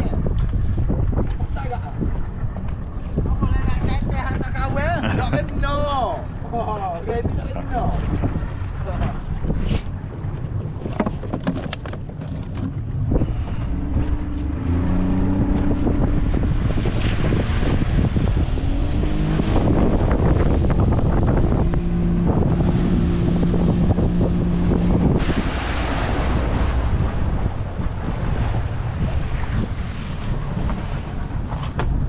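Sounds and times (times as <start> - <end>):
boat engine running: 0.0 - 32.0
wind buffeting microphone: 0.0 - 32.0.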